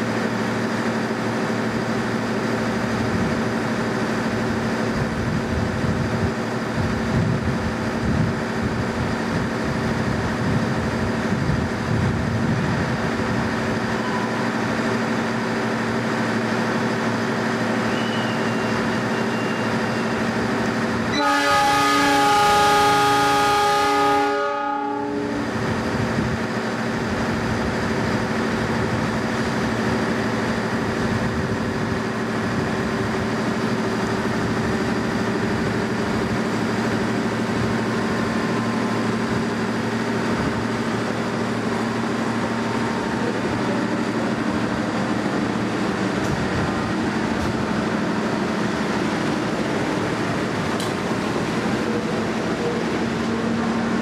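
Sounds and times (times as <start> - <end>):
locomotive engine droning: 0.0 - 54.0
train horn blast: 21.1 - 25.6.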